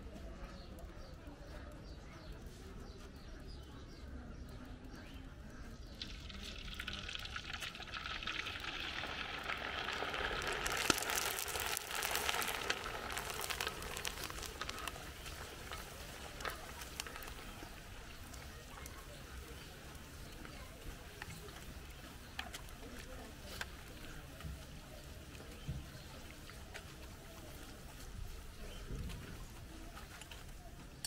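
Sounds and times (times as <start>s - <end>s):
hot oil sizzling: 5.9s - 21.9s.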